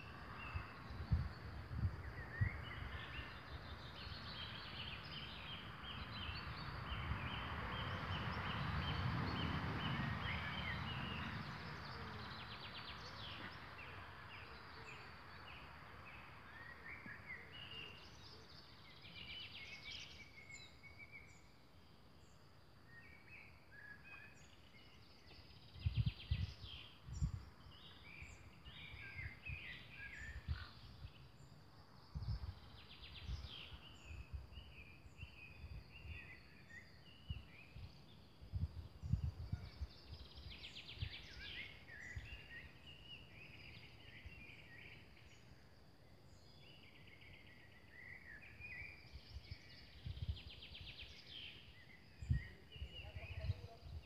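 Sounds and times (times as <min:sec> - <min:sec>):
small birds chirping: 0:22.2 - 0:54.0.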